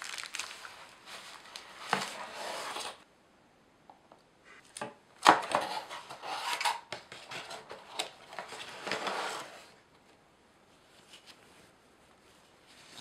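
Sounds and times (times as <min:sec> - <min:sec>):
packaging rustling: 0:00.0 - 0:03.0.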